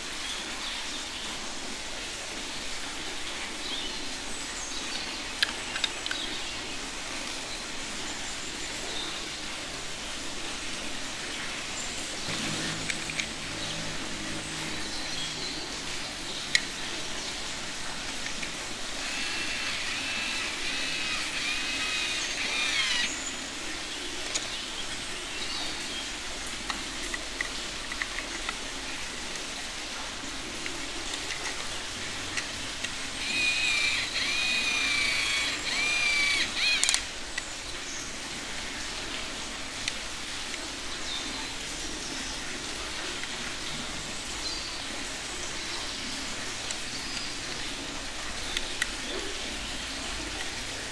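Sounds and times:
light plastic clicks: 5.4s - 6.4s, 35.6s - 37.5s
toy screwdriver motor whining: 18.2s - 23.4s, 33.2s - 37.1s.

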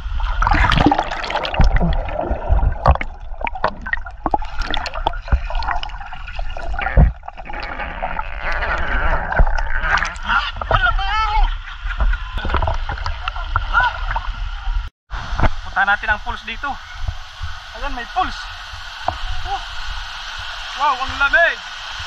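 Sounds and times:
underwater air bubbles gurgling: 0.0s - 10.2s
water sloshing: 0.0s - 11.0s
underwater knocks: 0.4s - 8.3s, 9.2s - 10.8s, 12.0s - 13.7s.

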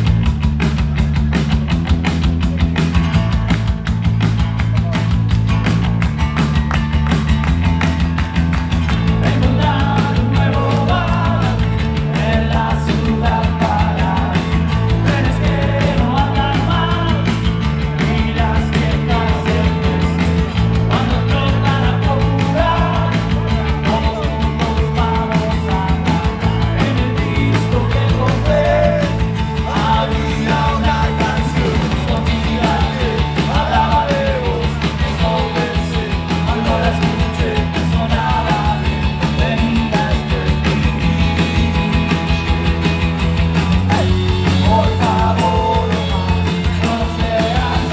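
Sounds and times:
live rock band playing: 0.0s - 47.9s
man singing into a microphone: 9.1s - 42.2s, 43.9s - 47.9s.

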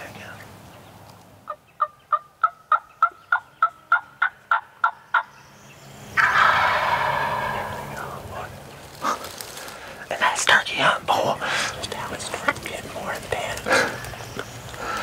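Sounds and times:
turkey gobbling loudly: 1.5s - 5.3s, 6.2s - 8.2s
turkey yelps: 6.2s - 8.1s.

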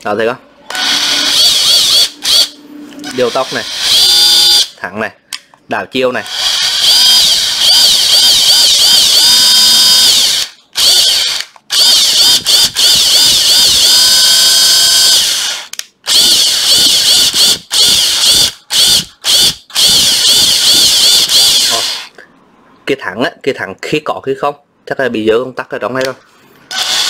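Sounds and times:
cordless drill motor whine: 0.7s - 2.5s, 3.1s - 4.7s, 6.3s - 22.1s, 26.7s - 27.0s.

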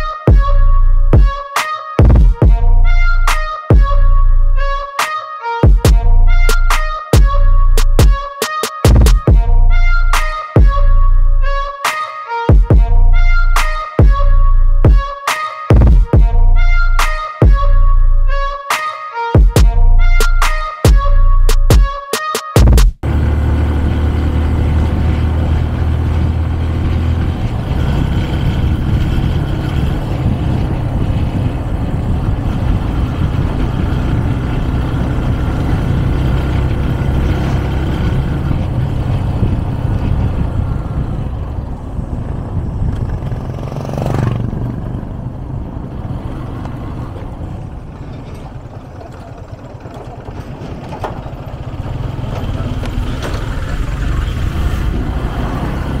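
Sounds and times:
wind and road noise: 0.0s - 22.0s, 22.6s - 56.0s
motorcycle engine running: 22.6s - 56.0s.

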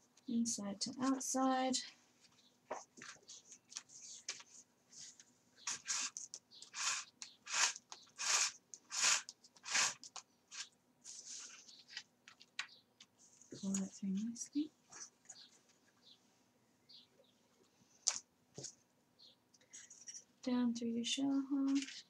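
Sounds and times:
paper rustling: 2.2s - 14.0s, 21.7s - 22.0s
thread scraping through paper holes: 5.6s - 12.0s.

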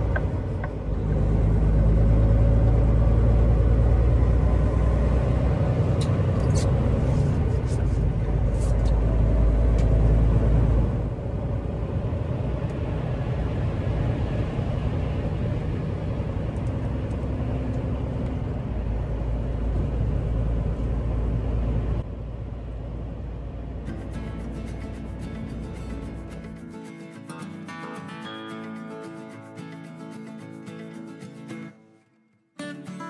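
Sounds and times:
truck engine and tyre rumble: 0.0s - 27.2s
road spray noise: 23.9s - 31.6s.

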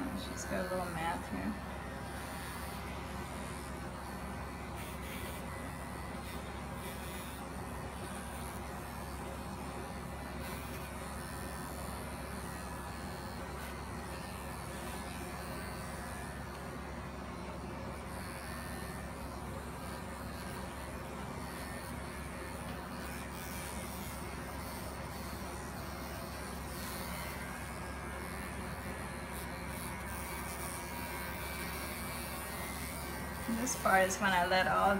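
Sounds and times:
electric clippers buzzing: 0.0s - 34.9s.

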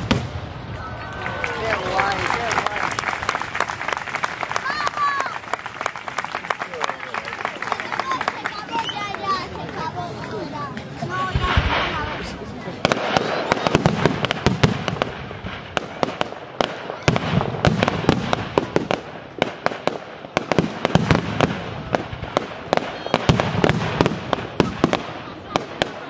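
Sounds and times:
fireworks bangs and crackles: 0.0s - 26.0s.

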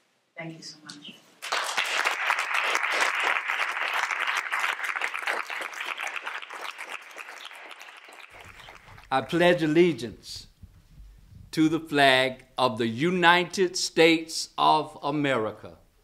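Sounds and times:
audience applauding: 1.4s - 9.4s.

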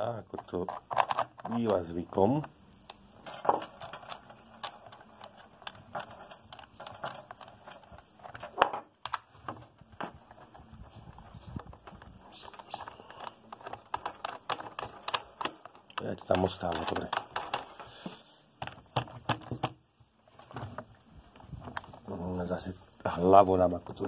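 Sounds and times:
light metal clicks and clinks: 10.0s - 19.9s.

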